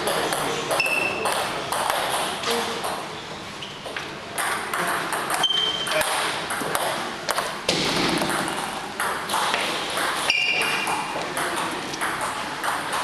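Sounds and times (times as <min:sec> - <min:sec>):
ping pong ball clicking: 0:00.0 - 0:03.1, 0:04.4 - 0:07.5, 0:08.2 - 0:13.0
voices in a hall: 0:00.0 - 0:13.0
short high squeak: 0:05.4 - 0:06.0.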